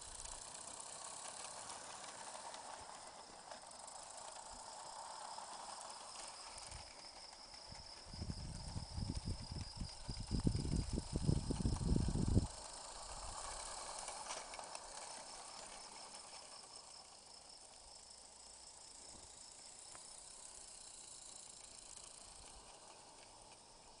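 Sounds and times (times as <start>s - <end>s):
steam locomotive hissing: 0.0s - 24.0s.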